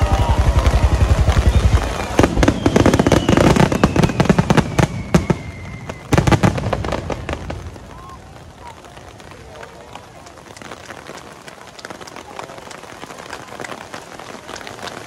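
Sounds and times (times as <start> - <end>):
firework whistle falling in pitch: 0.0 - 6.4
fireworks deep booms: 0.0 - 9.6
fireworks crackling bangs: 0.0 - 15.0.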